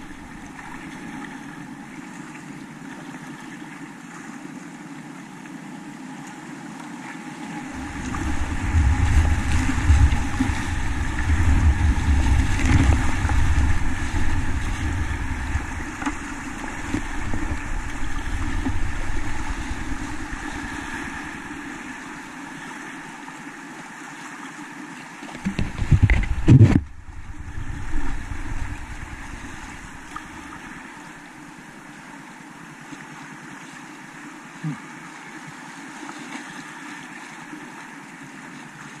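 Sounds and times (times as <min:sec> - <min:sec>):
low rumbling: 0:00.0 - 0:01.1, 0:07.6 - 0:23.2, 0:25.4 - 0:31.8
rushing whitewater: 0:00.0 - 0:39.0
wind buffeting microphone: 0:07.6 - 0:23.2, 0:25.4 - 0:31.5.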